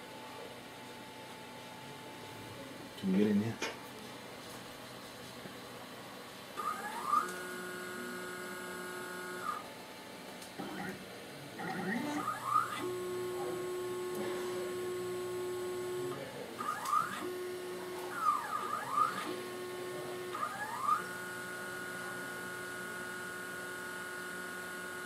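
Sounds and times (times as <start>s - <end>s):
motor and fan hum: 0.1s - 25.0s
stepper motor whines: 6.6s - 9.6s, 11.6s - 25.0s.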